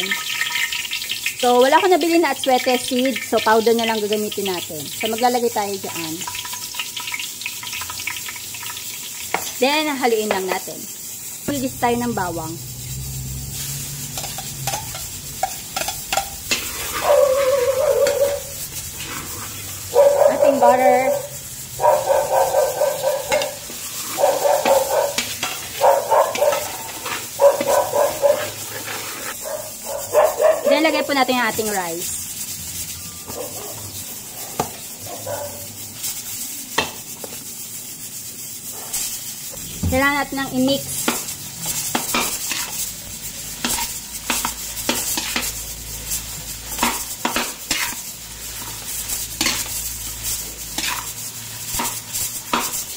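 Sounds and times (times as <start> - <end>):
garlic sizzling in hot oil: 0.0 - 52.9
metal spatula scraping a wok: 10.2 - 29.9, 35.6 - 52.9
metal spoon clicking on pan: 14.2 - 16.4.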